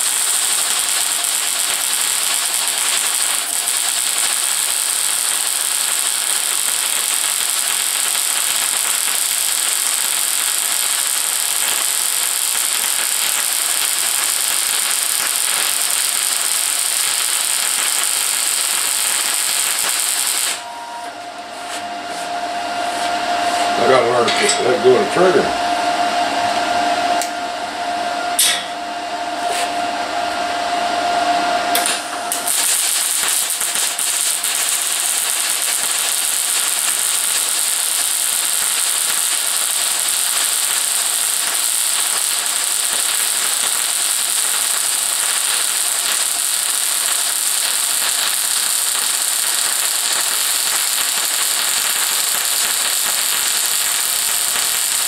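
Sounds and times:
welding arc hissing: 0.0s - 20.8s, 31.7s - 55.0s.

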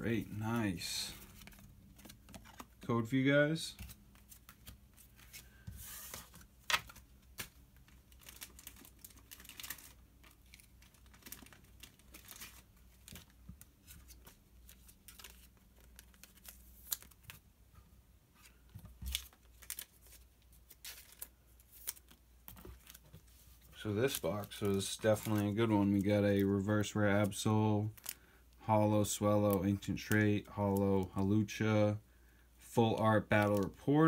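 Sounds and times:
cards and packaging rustling: 0.0s - 17.4s, 18.4s - 31.6s, 32.7s - 34.0s.

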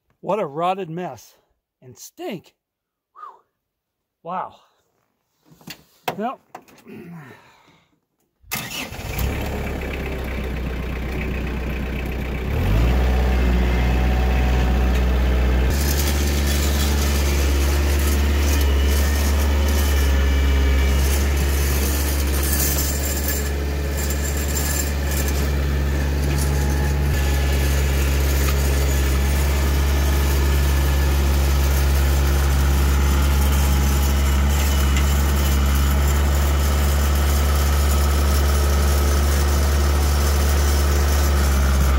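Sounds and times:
tractor diesel engine running: 8.5s - 41.9s.

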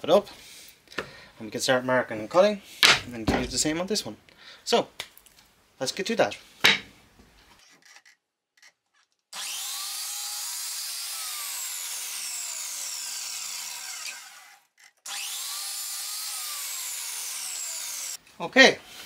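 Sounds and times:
electric mitre saw cutting boards: 9.3s - 18.2s.

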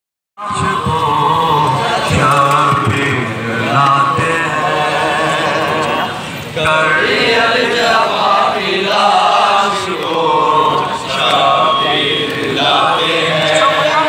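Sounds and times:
man chanting a lament: 0.4s - 7.3s.

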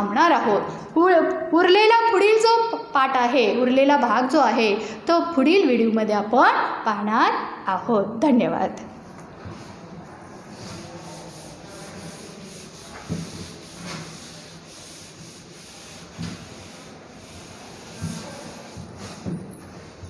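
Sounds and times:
duster rubbing on blackboard: 9.3s - 20.0s.

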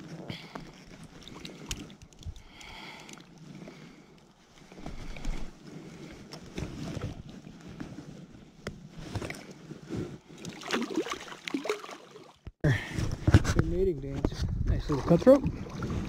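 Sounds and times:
water sloshing and splashing: 0.6s - 7.7s, 9.0s - 12.6s, 14.7s - 16.0s
wind on microphone: 13.1s - 16.0s.

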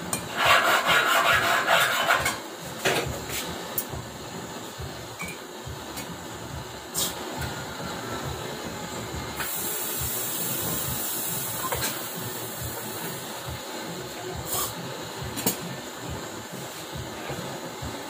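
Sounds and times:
gas torch flame hissing: 0.0s - 18.0s.

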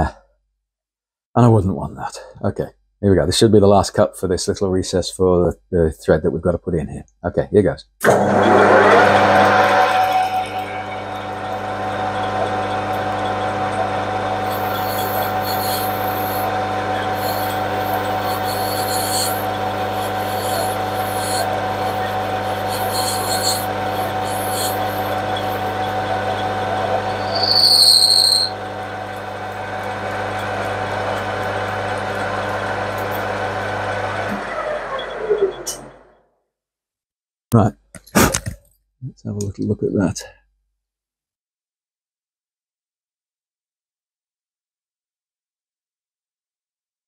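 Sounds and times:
high-pitched squeal: 8.0s - 29.2s
lathe motor hum: 8.0s - 36.1s
high cutting hiss: 14.4s - 26.0s.

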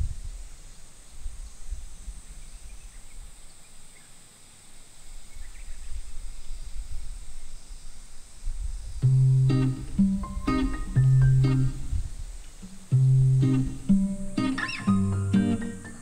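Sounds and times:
wind gusting on microphone: 0.0s - 3.3s, 5.3s - 14.4s
insects droning: 0.0s - 16.0s
faint bird chirps: 0.3s - 4.2s, 5.1s - 8.1s, 14.0s - 16.0s.

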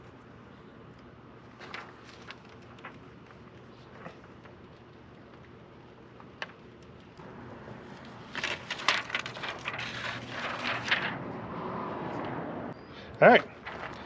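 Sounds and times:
paper sheet rustling and crinkling: 1.4s - 5.5s, 7.7s - 11.4s, 13.5s - 14.0s.

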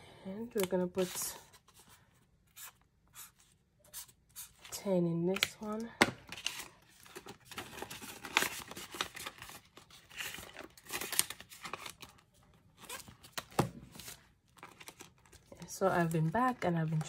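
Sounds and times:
plastic pouches crinkling and rustling: 4.6s - 17.0s.

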